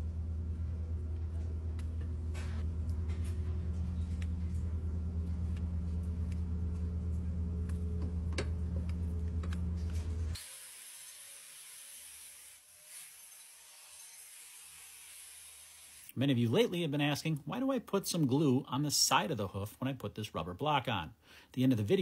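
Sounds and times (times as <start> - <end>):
low motor hum: 0.0 - 10.4
airy hiss: 10.4 - 13.8.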